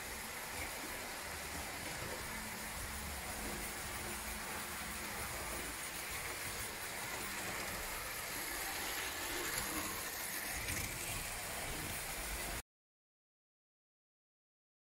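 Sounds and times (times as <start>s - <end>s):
toy tram running on track: 0.0s - 12.6s.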